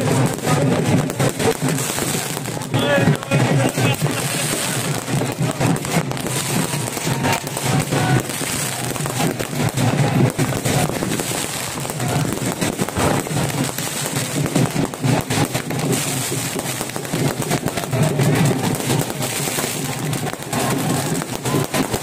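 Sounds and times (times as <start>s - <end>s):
firecrackers popping: 0.0s - 22.0s
large crowd noise: 0.0s - 22.0s.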